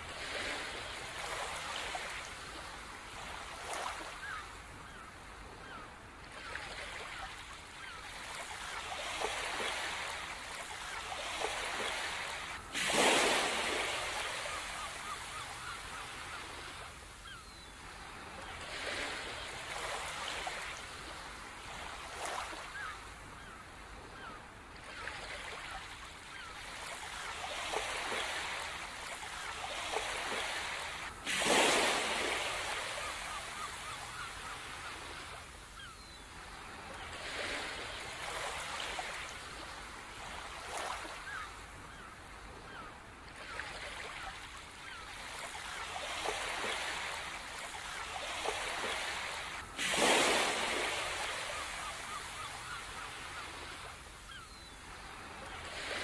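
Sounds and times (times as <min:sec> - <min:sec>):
sea waves washing in: 0:08.2 - 0:17.2, 0:27.1 - 0:35.6, 0:45.4 - 0:54.3.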